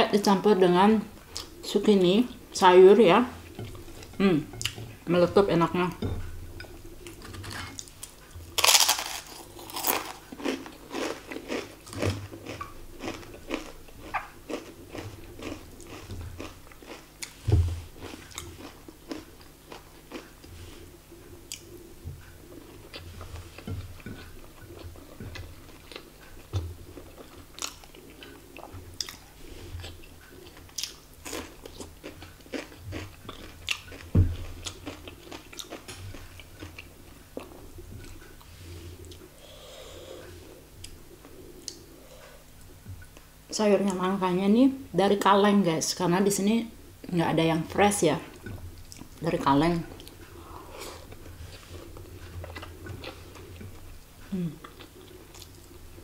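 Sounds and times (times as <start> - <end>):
chewing with mouth clicks: 6.2 - 17.4, 18.0 - 20.6, 21.2 - 39.3, 49.9 - 55.9
fritter crunching: 6.6 - 20.5.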